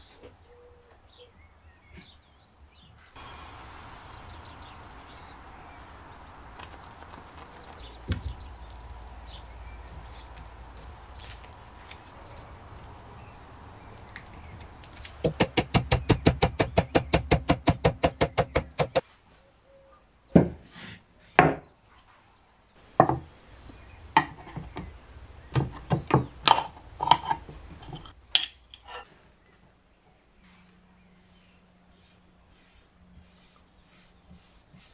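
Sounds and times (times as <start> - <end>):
fast run of sharp knocks: 15.2 - 19.0.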